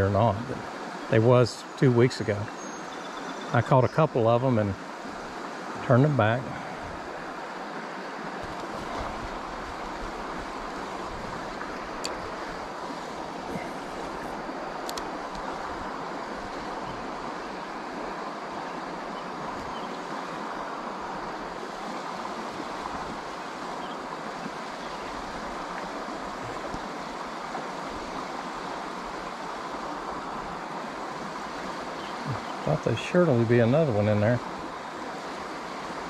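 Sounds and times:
creek water rushing: 0:00.0 - 0:36.0
faint clicks: 0:14.8 - 0:15.5.

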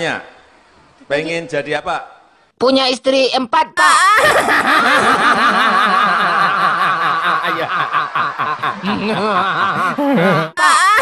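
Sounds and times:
audience laughing: 0:04.4 - 0:10.6.

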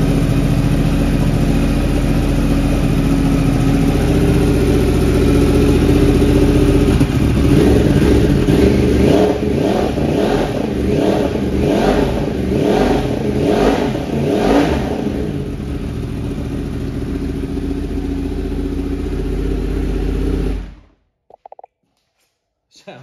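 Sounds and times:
motorcycle engine idling: 0:00.0 - 0:09.6, 0:15.2 - 0:20.7
motorcycle engine revving: 0:00.0 - 0:20.8.

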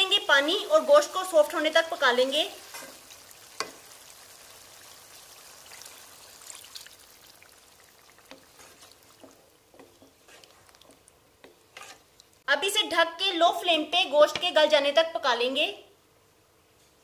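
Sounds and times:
water pouring into a pan: 0:00.4 - 0:09.2
wooden spoon stirring and knocking pan: 0:02.4 - 0:03.9, 0:08.2 - 0:12.1.

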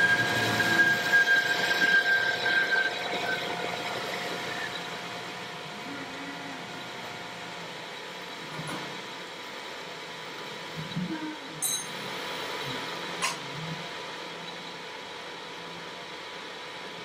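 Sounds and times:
lathe running: 0:00.0 - 0:10.8
lathe cutting whine: 0:00.0 - 0:17.0.

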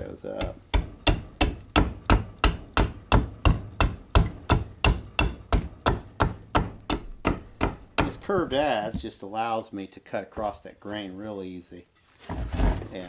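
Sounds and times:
adze chopping wood: 0:00.4 - 0:09.1.

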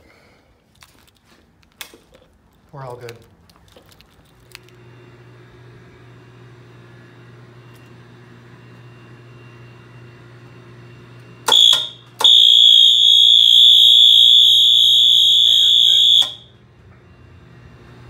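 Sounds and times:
fire alarm horn: 0:11.4 - 0:16.6.

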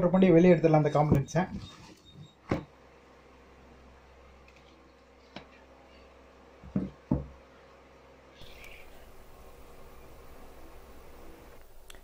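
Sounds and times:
faint low hum: 0:00.0 - 0:12.0
transformer knocking on tabletop: 0:06.6 - 0:07.3.

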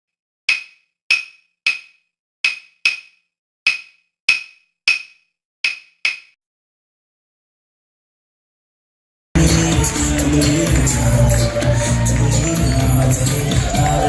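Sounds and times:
claves struck in rhythm: 0:09.4 - 0:14.0.

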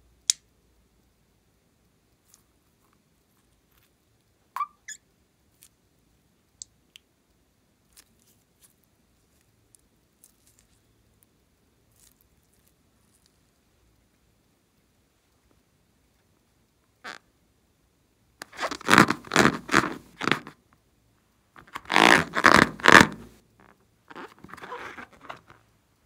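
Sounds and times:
rubber balloon squeak: 0:04.6 - 0:05.0, 0:18.4 - 0:20.4, 0:21.8 - 0:23.3, 0:24.1 - 0:25.4.

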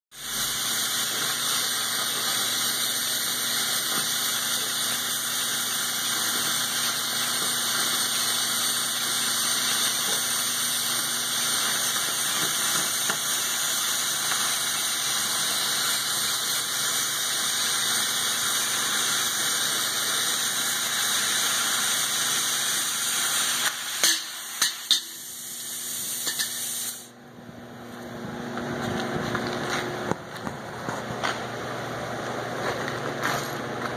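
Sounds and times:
cutting torch hissing: 0:00.1 - 0:27.2.

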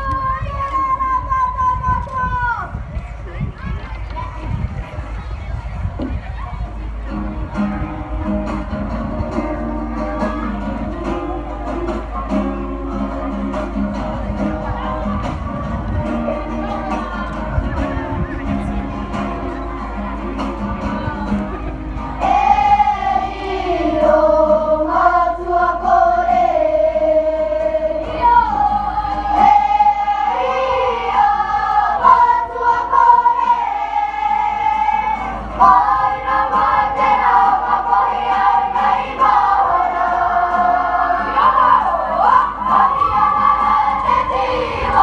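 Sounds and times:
guitar accompaniment: 0:05.8 - 0:45.0
children singing together: 0:21.5 - 0:45.0.

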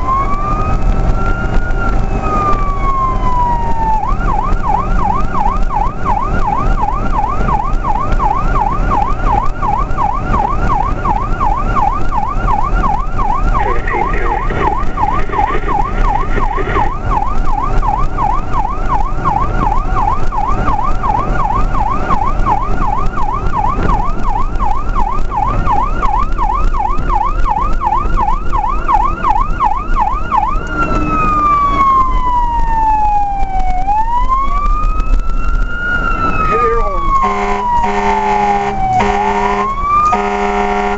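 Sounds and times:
fire engine siren: 0:00.0 - 0:40.9
low rumble: 0:12.2 - 0:18.4.

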